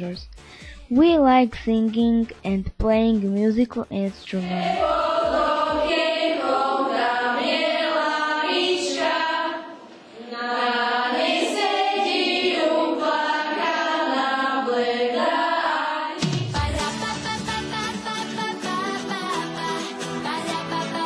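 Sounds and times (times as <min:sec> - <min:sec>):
children singing: 0:04.4 - 0:21.0.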